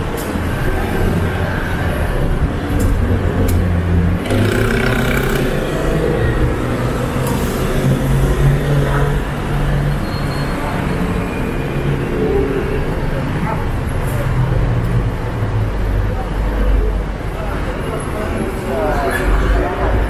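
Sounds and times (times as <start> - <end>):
road noise: 0.0 - 20.0
sharp clicks: 4.2 - 5.6.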